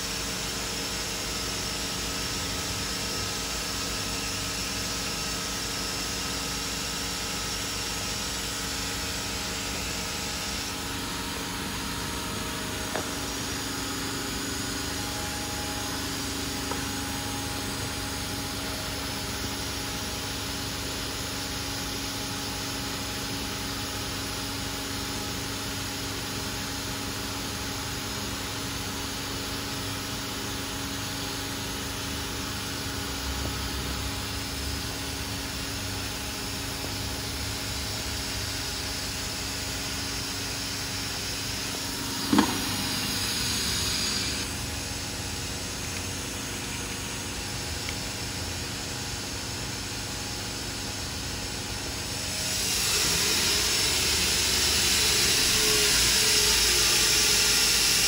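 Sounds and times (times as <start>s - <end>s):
machine humming: 8.0s - 19.6s, 31.9s - 48.8s
hiss: 52.4s - 58.0s.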